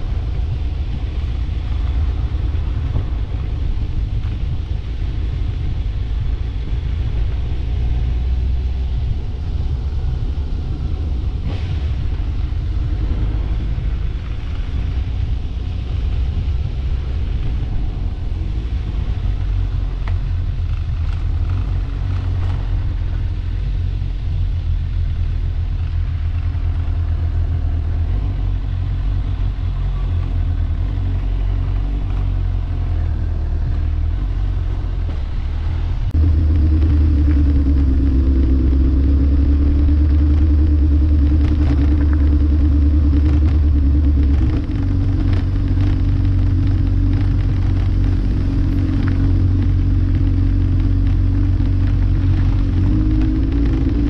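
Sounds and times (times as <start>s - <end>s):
droning hum: 0.0s - 54.0s
vehicle engine and road rumble: 0.0s - 54.0s.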